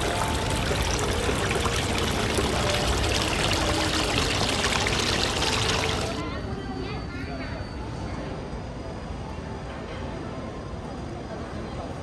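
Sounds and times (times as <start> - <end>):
water trickling over stones: 0.0 - 6.2.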